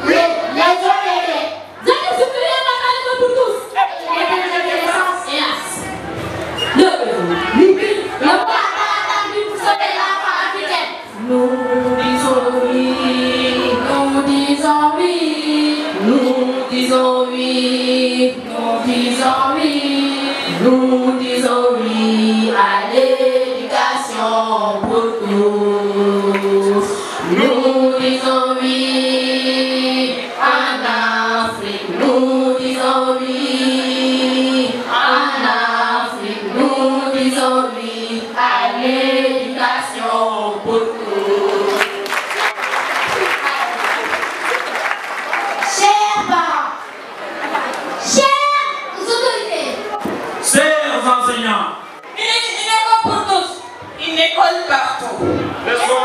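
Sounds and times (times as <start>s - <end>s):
woman singing into microphone: 7.0s - 42.0s.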